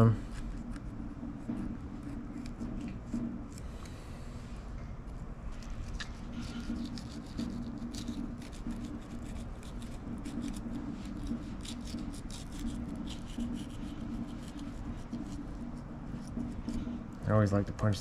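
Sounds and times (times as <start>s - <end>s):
steady low hum: 0.0s - 18.0s
knife slicing fish: 5.7s - 16.8s.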